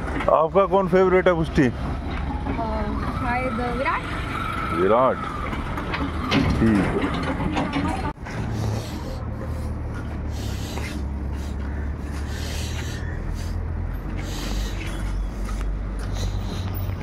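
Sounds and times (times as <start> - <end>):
footsteps on dirt road: 8.2 - 17.0.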